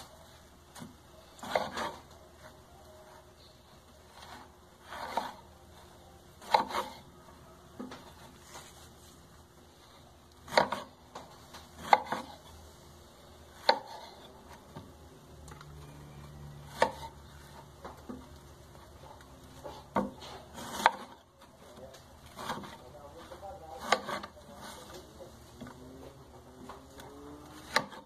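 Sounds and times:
knife chopping on cutting board: 0.8s - 2.1s, 4.2s - 5.4s, 6.4s - 7.0s, 10.4s - 11.2s, 11.8s - 12.4s, 13.6s - 14.9s, 16.7s - 17.1s, 19.6s - 21.2s, 22.3s - 22.8s, 23.8s - 24.8s, 27.0s - 28.0s.

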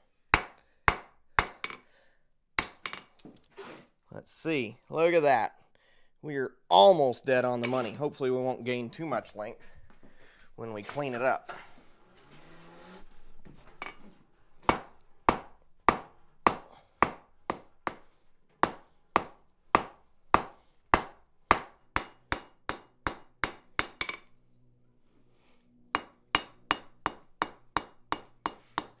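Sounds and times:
hammer striking steel on anvil: 0.3s - 1.8s, 2.6s - 3.1s, 14.6s - 24.3s, 25.9s - 29.0s.

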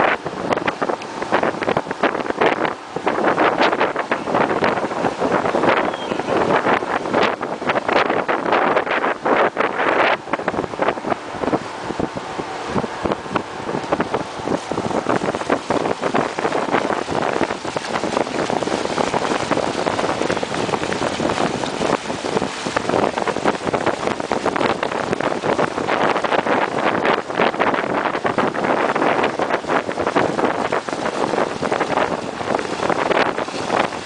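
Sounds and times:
water splashing along boat hull: 0.0s - 34.0s
wind buffeting microphone: 0.0s - 34.0s.

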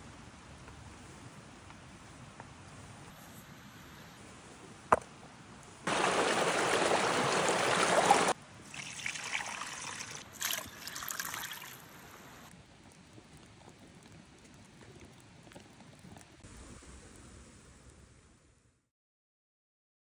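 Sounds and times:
creek rushing: 5.9s - 8.4s
water poured into a steel bowl: 5.9s - 12.4s.

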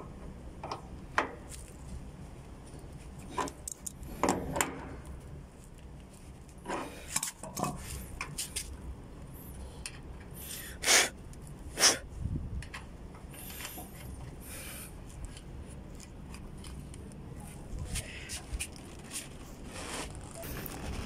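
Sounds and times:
handling noise on metal valves: 6.5s - 8.8s.

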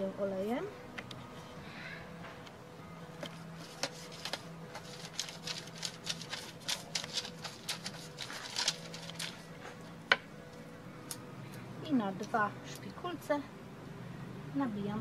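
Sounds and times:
brush scraping foil tray: 3.6s - 9.5s.

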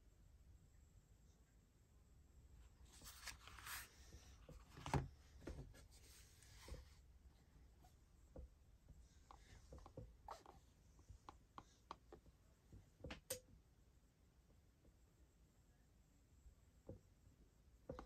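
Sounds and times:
paper rustling: 2.8s - 6.8s.

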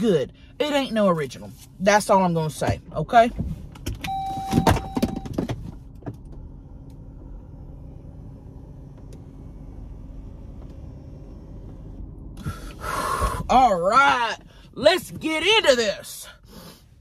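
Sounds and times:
car engine idling: 0.0s - 17.0s.

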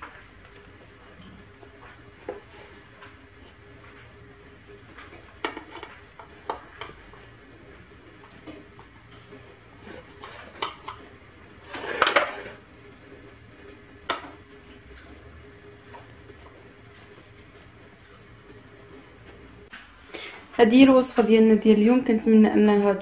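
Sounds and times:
crackling scrape: 9.1s - 11.0s, 11.6s - 13.8s.

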